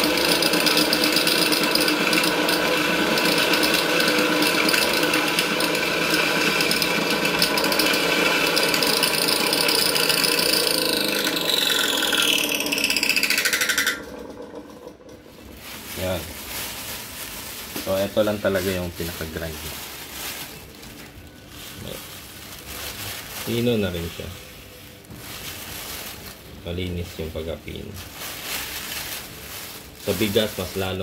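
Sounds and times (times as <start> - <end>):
electric grinder whining: 0.0 - 15.2.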